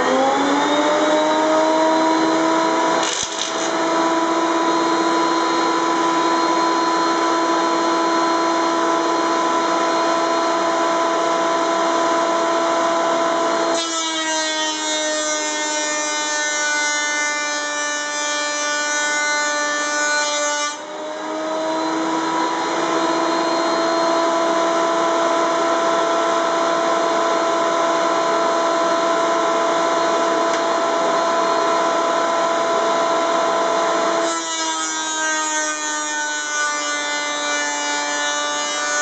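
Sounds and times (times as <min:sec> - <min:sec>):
planer motor whine: 0:00.0 - 0:13.9, 0:20.8 - 0:34.3
wood cutting hiss: 0:03.0 - 0:03.8.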